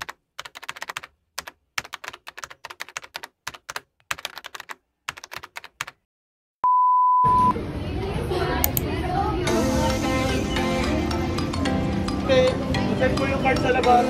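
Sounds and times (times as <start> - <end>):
keyboard typing clicks: 0.0 - 6.0
high-pitched test-tone beep: 6.6 - 7.6.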